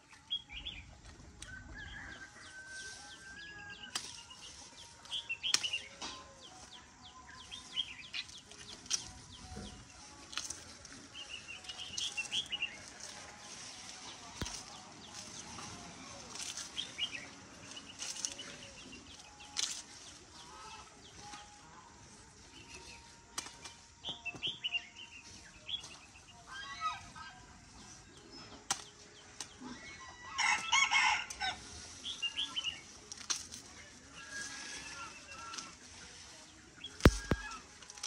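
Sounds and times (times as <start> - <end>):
small birds chirping: 3.6 - 21.6, 31.4 - 38.0
machete chopping grass stalks: 3.8 - 6.2, 14.4 - 15.5, 23.3 - 23.8, 37.0 - 38.0
chickens clucking: 7.5 - 21.5, 34.1 - 37.8.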